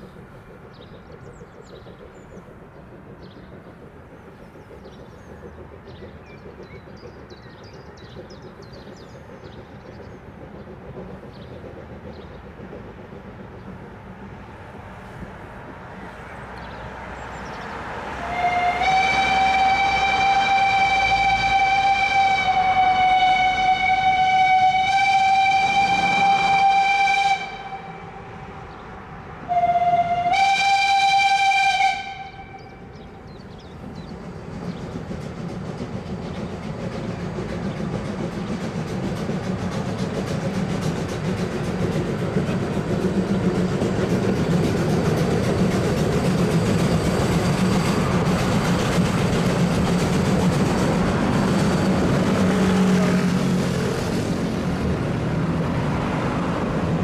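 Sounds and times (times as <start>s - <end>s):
faint birdsong: 0.0s - 18.8s, 27.5s - 30.2s, 32.1s - 38.8s
steam locomotive whistle: 18.1s - 28.4s, 29.4s - 32.9s
passing cars: 47.1s - 57.0s.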